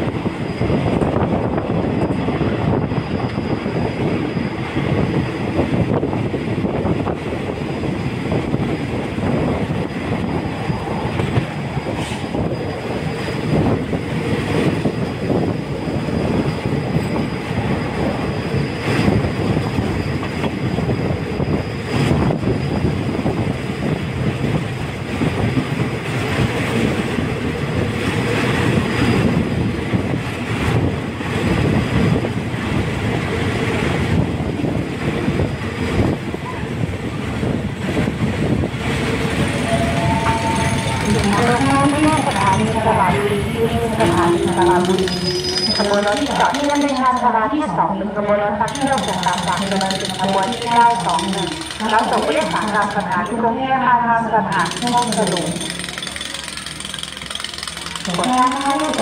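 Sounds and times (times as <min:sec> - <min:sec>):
train wheels rumbling on rails: 0:00.0 - 0:53.6, 0:54.4 - 0:59.0
sharp wheel clacks: 0:48.7 - 0:53.4, 0:54.5 - 0:59.0.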